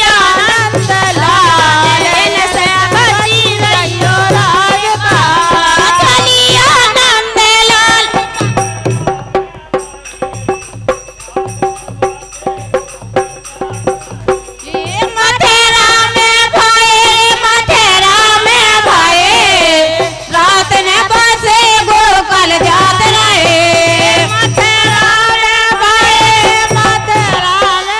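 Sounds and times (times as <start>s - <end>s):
women singing folk song: 0.0s - 8.7s, 14.6s - 27.9s
drum strokes: 0.0s - 27.9s
instrumental accompaniment: 0.0s - 27.9s.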